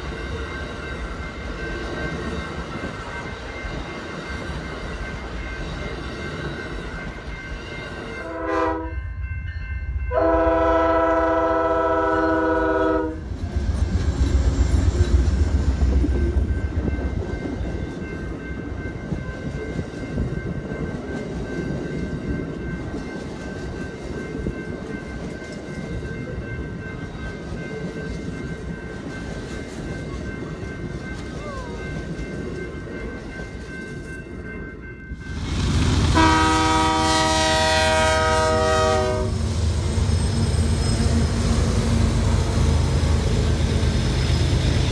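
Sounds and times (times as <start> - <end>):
train air horn blasts: 8.2 - 9.0, 10.1 - 13.3, 36.1 - 39.4.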